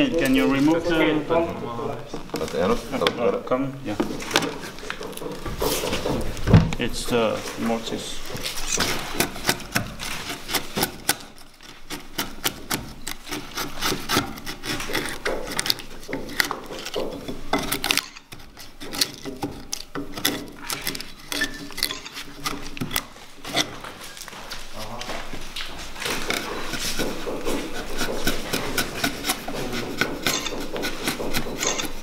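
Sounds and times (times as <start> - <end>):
chisel scraping into wood: 8.3 - 24.3, 25.6 - 32.0.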